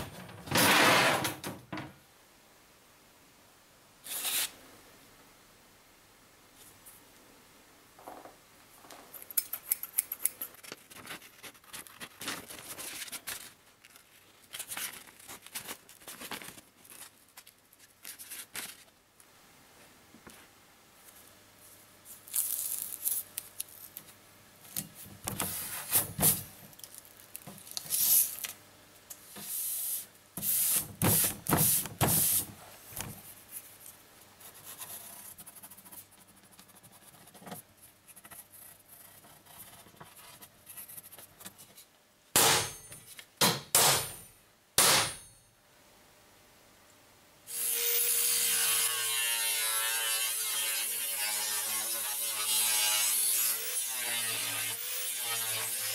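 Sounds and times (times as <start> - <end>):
paper rubbed onto steel sheet: 4.0 - 4.5
tape unrolling: 4.0 - 4.6, 22.2 - 24.1
pencil tracing: 34.4 - 41.4.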